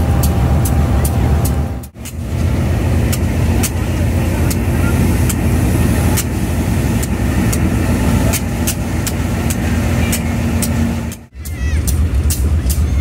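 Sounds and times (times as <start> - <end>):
diesel locomotive drone: 0.0 - 13.0.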